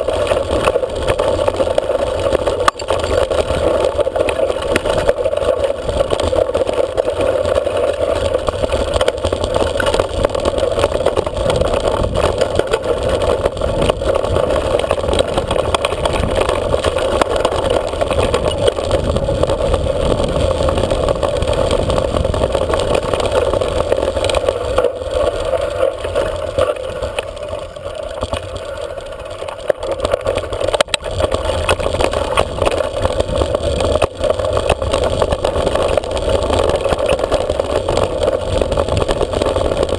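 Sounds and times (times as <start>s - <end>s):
bike ride rumble on dirt track: 0.0s - 39.9s
wind on microphone: 10.1s - 27.6s.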